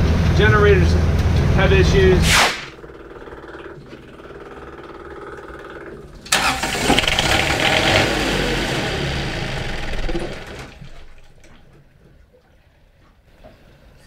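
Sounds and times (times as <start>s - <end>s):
generator engine cranking: 2.7s - 11.6s.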